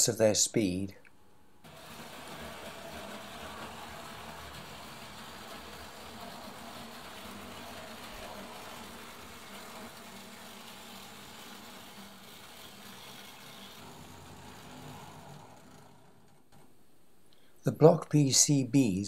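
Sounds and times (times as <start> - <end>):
model train motor hum: 1.7 - 16.6
wheel rumble on metal track: 1.7 - 16.6.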